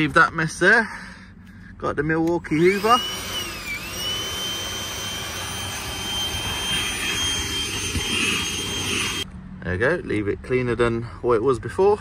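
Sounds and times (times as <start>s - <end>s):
vacuum cleaner high whine: 2.6s - 9.2s.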